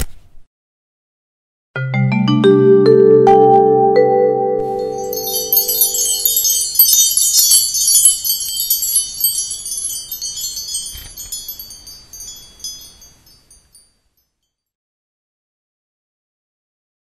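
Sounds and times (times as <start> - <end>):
tinkling wind chimes: 4.6 - 14.8.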